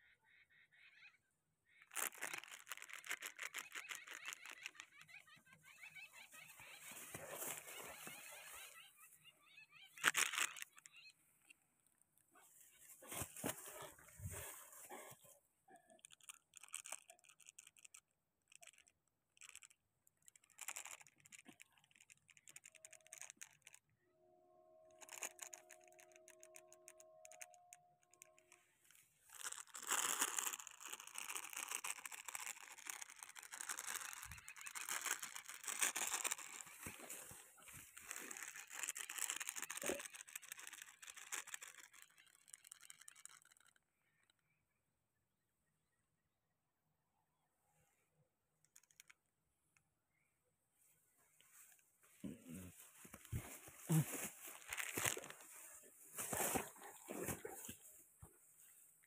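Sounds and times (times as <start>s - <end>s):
scratchy rustling with crackles: 1.9s - 9.3s, 12.3s - 23.8s, 24.9s - 43.8s, 51.3s - 59.0s
scratchy rustles: 12.4s - 15.3s.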